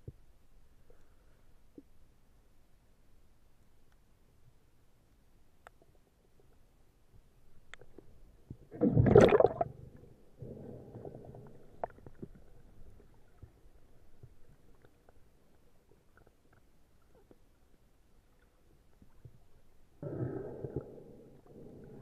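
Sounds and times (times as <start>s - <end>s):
air bubbles gurgling underwater: 8.7s - 9.8s.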